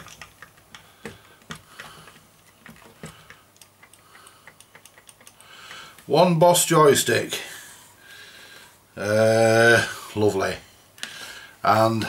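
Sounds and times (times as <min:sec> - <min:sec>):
joystick clicking: 0:00.0 - 0:06.1.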